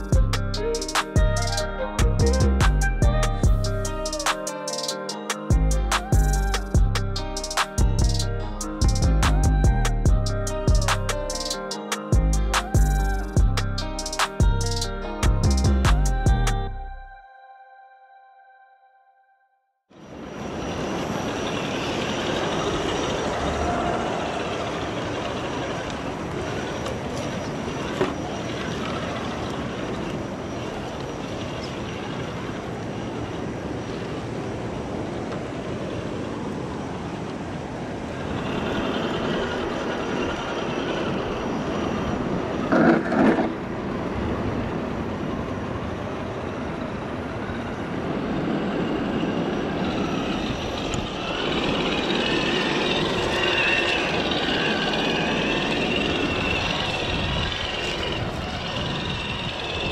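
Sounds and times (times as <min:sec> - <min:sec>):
electric motor and gears whining: 0:48.4 - 0:59.9.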